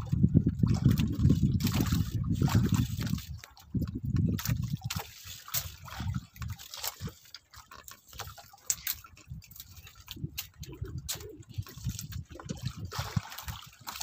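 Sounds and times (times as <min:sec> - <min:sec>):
water dripping: 0:00.0 - 0:14.0
water sloshing and splashing: 0:00.0 - 0:14.0.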